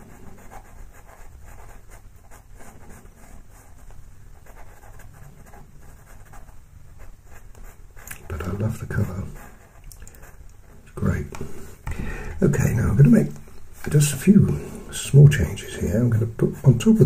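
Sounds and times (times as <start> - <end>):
pencil scratching on paper: 0.0 - 10.9, 15.6 - 17.0
low background hum: 0.0 - 17.0.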